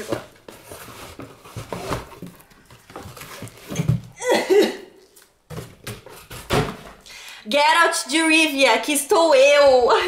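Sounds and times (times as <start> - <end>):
rustling and knocks of packaging: 0.0 - 4.2, 5.2 - 7.0.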